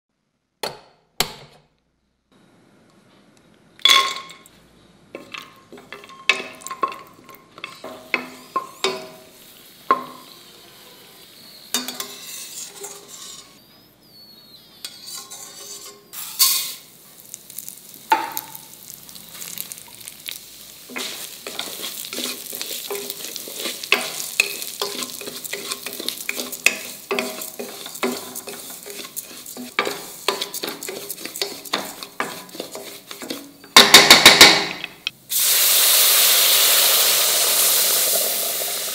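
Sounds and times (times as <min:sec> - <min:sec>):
nuts frying in fat: 0:05.1 - 0:38.9
metal spatula scraping pot: 0:05.2 - 0:09.3, 0:09.9 - 0:16.9, 0:19.4 - 0:35.1
grains sizzling while stirred: 0:05.2 - 0:38.9.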